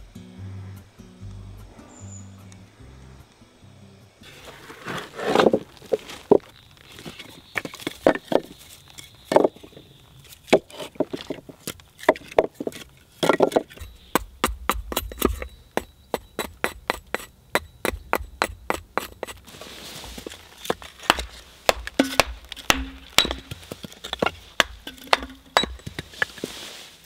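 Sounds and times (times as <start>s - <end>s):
tool striking wood: 21.0s - 26.1s.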